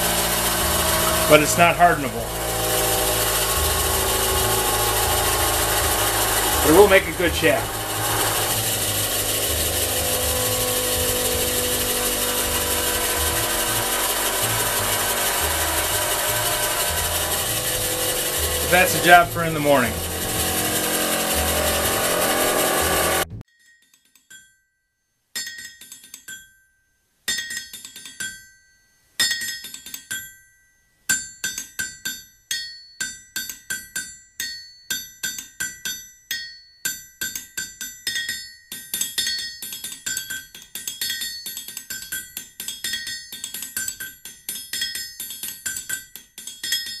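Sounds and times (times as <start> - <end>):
high ringing struck notes: 0.0 - 23.4.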